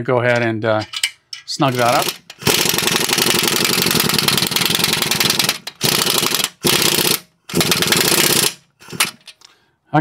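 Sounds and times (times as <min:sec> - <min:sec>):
impact wrench hammering: 0:00.8 - 0:09.3.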